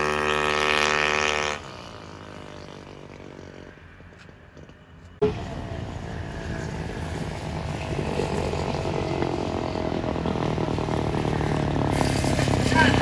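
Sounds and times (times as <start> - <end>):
scooter engine running: 6.6 - 13.0.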